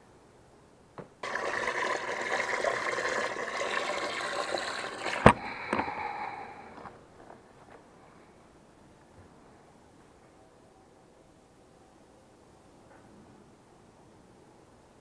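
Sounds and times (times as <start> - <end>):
water splashing and running: 1.2 - 5.4.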